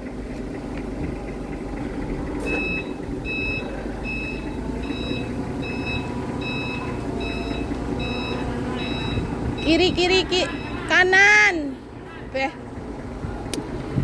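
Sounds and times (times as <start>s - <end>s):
diesel engine running: 0.0s - 14.0s
truck reversing alarm beeping: 1.7s - 11.8s.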